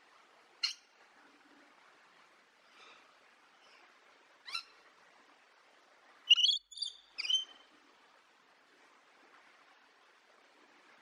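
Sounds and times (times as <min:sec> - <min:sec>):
faint steady hiss: 0:00.0 - 0:11.0
lorikeet calling: 0:06.3 - 0:07.5.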